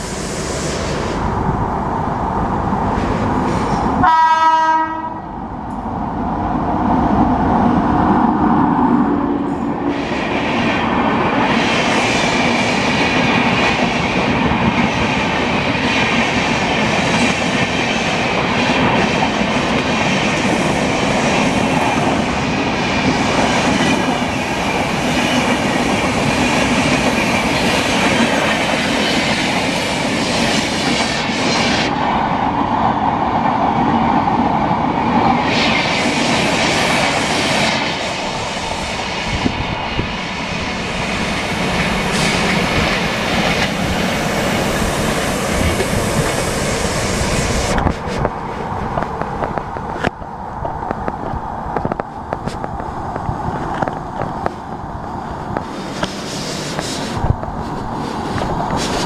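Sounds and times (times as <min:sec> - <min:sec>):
train passing at speed: 0:00.0 - 0:59.0
train horn blast: 0:04.0 - 0:05.3.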